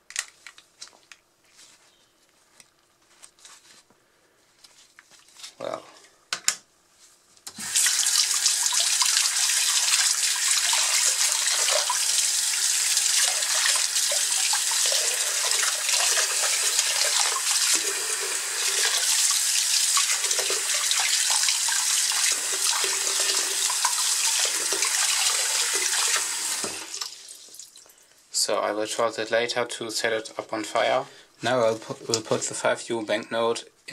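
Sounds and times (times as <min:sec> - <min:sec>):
tap running into basin: 0:07.7 - 0:27.6.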